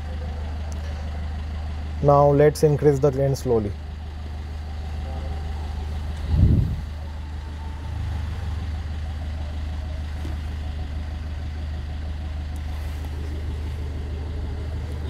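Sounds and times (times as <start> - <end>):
subwoofer bass test tone: 6.2 - 6.9.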